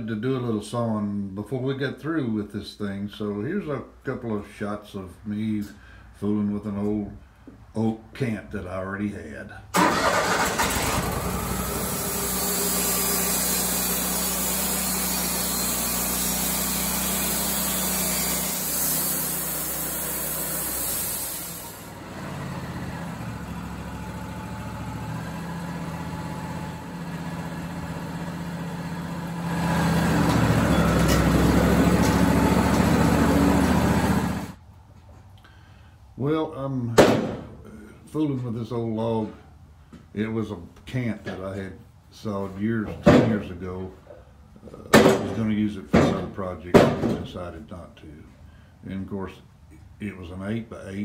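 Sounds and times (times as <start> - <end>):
sawmill engine running: 9.8 - 34.6.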